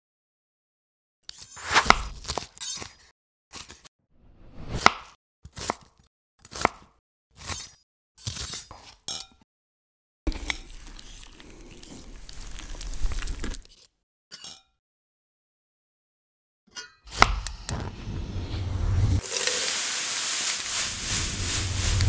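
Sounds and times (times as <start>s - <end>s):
knife chopping on wooden board: 1.6s - 2.4s.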